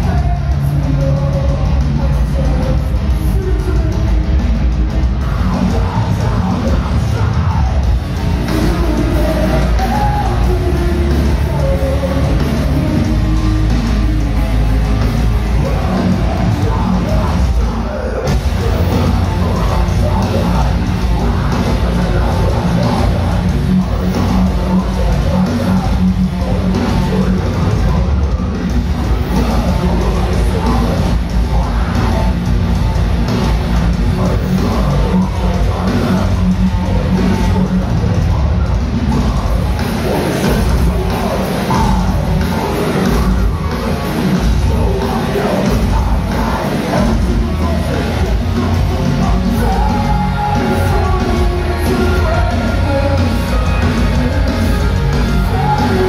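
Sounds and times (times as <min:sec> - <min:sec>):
metalcore band playing live: 0:00.0 - 0:56.0.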